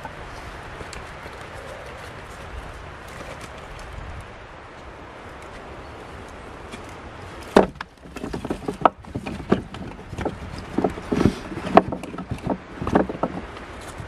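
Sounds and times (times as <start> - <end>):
firewood knocking and clattering: 6.7 - 14.0.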